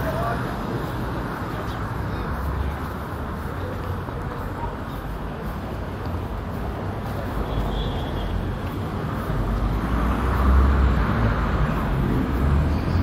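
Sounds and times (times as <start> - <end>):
city street traffic: 0.0 - 13.0.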